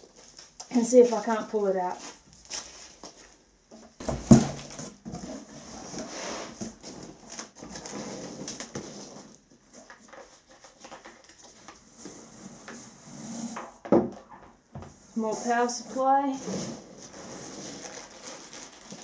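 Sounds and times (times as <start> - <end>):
cardboard box thumping on floor: 4.0 - 5.2
rustling of packing peanuts: 15.2 - 19.0.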